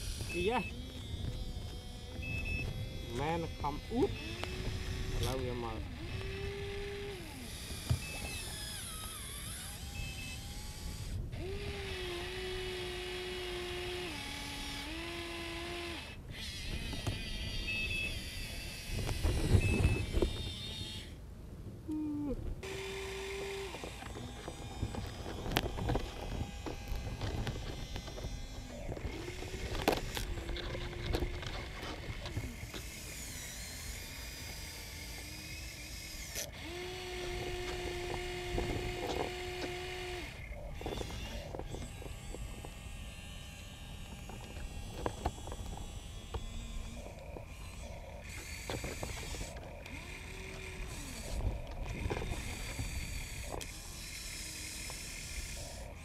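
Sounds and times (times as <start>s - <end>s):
electric motors whining: 0.0s - 21.2s, 21.8s - 56.0s
buckets clicking and scraping dirt: 22.6s - 32.9s, 43.7s - 54.0s.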